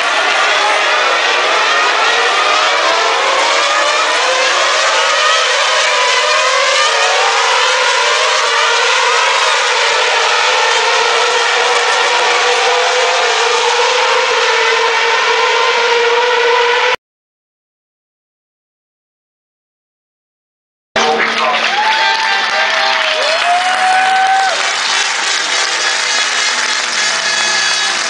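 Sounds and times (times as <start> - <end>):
racing car engines passing: 0.0 - 17.0, 21.0 - 28.0.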